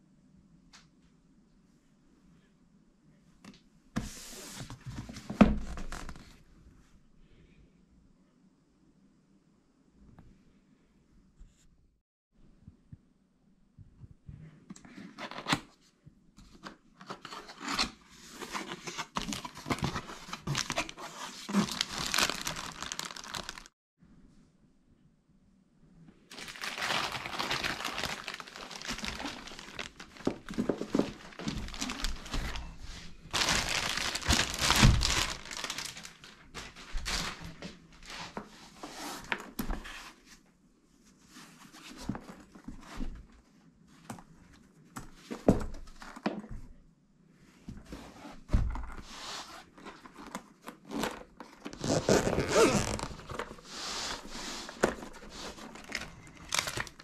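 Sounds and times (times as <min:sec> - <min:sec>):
cardboard and wrapping rustling: 0:17.0 - 0:23.8, 0:26.3 - 0:40.4, 0:47.7 - 0:57.0.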